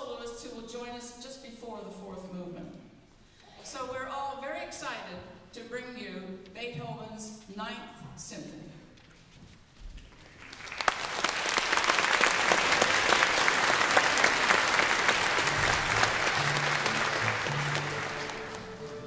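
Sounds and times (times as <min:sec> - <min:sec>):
audience applauding: 0:10.2 - 0:19.0.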